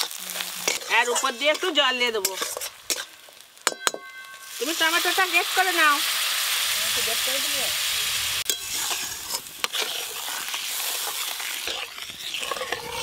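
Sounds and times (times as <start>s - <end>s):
metal spatula scraping pan: 0.0s - 5.2s, 8.4s - 13.0s
paste sizzling in hot oil: 0.0s - 13.0s.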